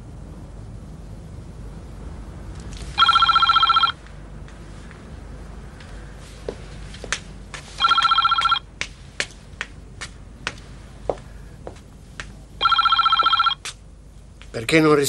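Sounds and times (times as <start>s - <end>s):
telephone bell ringing: 3.0s - 4.0s, 7.8s - 8.6s, 12.6s - 13.6s
footsteps clicking on floor: 5.8s - 12.4s.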